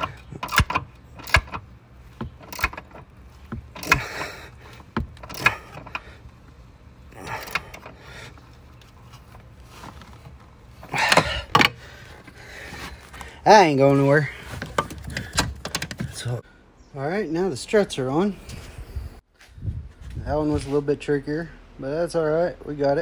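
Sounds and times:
wrench clicking on metal nuts: 0:00.0 - 0:06.1, 0:07.2 - 0:08.0.

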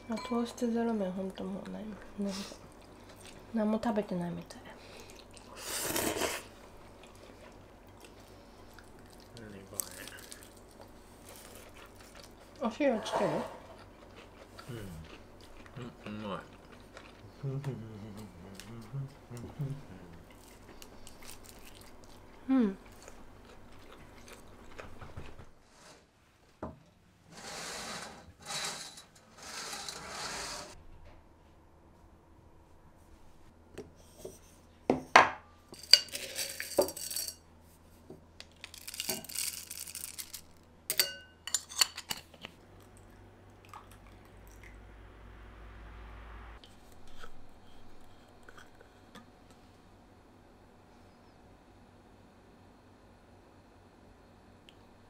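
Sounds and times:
faint low hum: 0:00.0 - 0:25.5, 0:40.4 - 0:55.0
dishes and cutlery clinking: 0:35.0 - 0:37.4, 0:40.9 - 0:42.4.

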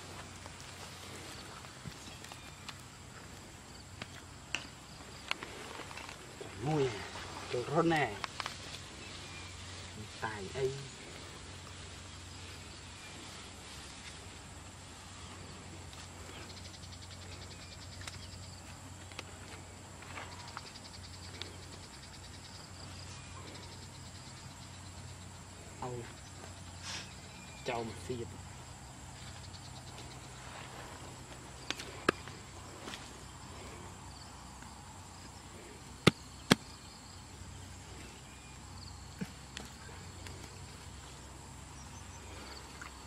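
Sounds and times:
insect trill: 0:00.0 - 0:43.0
sharp knocks while digging: 0:36.0 - 0:36.7.

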